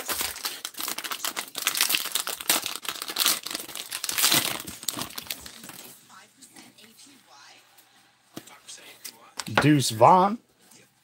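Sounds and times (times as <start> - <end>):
plastic wrapper crinkling and tearing: 0.0 - 6.0.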